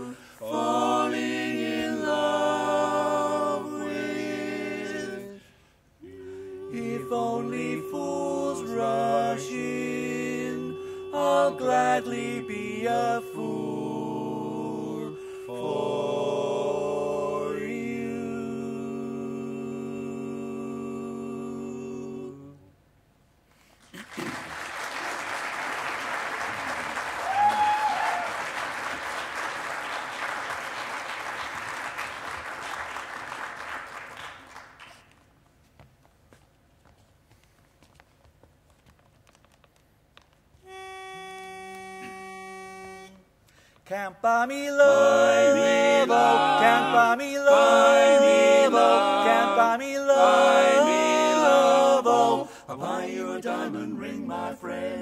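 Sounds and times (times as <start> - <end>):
quartet singing a cappella: 0.0 - 22.7, 44.0 - 55.0
audience applauding: 23.8 - 35.2.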